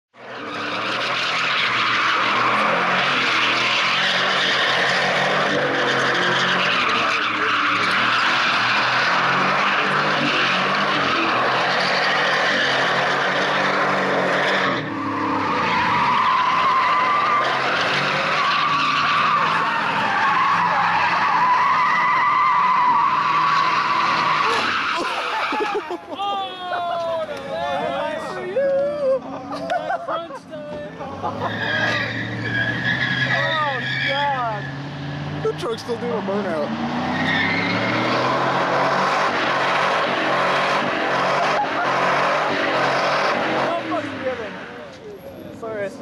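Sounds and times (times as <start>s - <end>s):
truck engine revving hard: 0.2s - 25.9s, 31.0s - 44.8s
high tyre squeal: 0.2s - 26.1s, 31.1s - 46.0s
tyres spinning on gravel: 0.3s - 26.5s.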